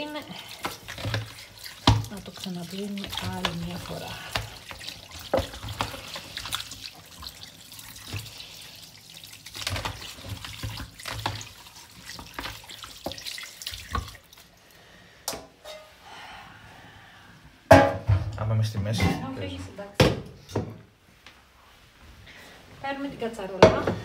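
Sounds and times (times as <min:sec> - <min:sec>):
tap water splashing on meat: 0:00.0 - 0:14.5.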